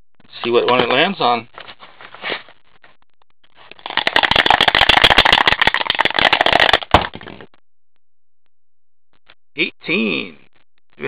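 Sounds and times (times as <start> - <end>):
die rattling in plastic cup: 3.8 - 7.1.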